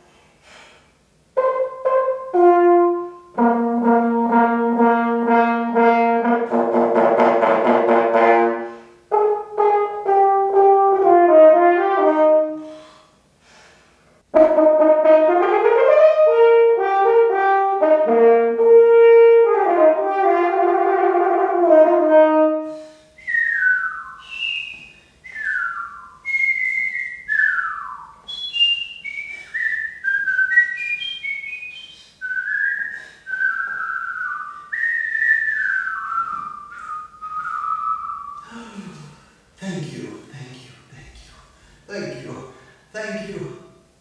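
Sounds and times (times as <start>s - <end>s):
french horn melody: 1.4s - 12.8s, 14.3s - 23.0s
person whistling a tune: 23.2s - 38.7s.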